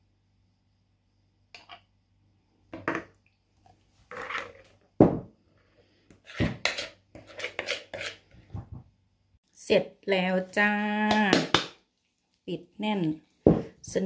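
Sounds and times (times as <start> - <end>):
metal spoon scraping in glass jar: 4.1 - 4.7, 6.3 - 8.2.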